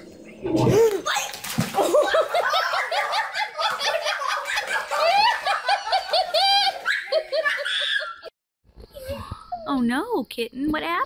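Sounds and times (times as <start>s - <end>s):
high-pitched laughter: 1.8s - 8.3s.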